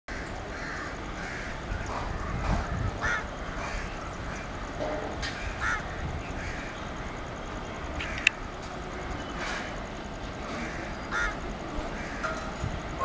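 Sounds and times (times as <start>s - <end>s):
bird harsh calls: 0.1s - 7.2s, 10.5s - 12.2s
electric locomotive rumble: 0.1s - 13.0s.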